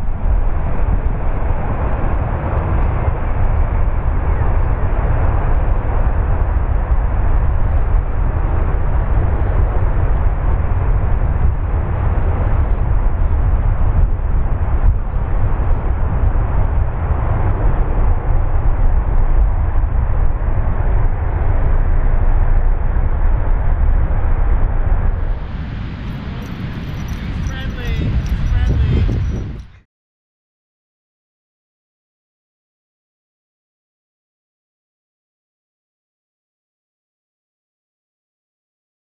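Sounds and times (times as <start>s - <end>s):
wind buffeting microphone: 0.0s - 29.9s.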